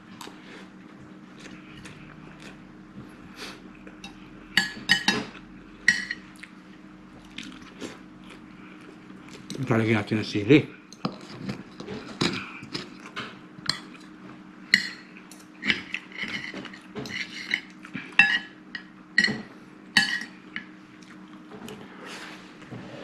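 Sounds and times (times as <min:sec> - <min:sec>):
low steady hum: 0:00.0 - 0:23.0
cutlery clinking on ceramic: 0:04.0 - 0:05.3, 0:05.9 - 0:06.2, 0:14.7 - 0:20.7.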